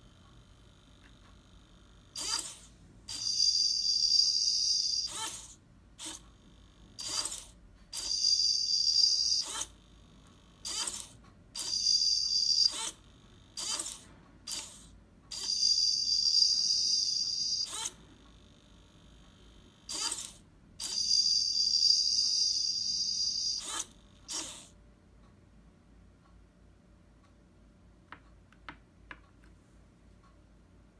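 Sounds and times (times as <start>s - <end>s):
servos whirring with whine: 0.7s - 24.8s.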